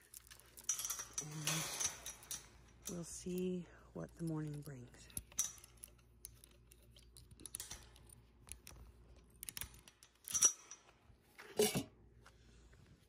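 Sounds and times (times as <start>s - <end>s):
chain rattling against metal post: 0.0s - 8.2s, 9.3s - 11.0s.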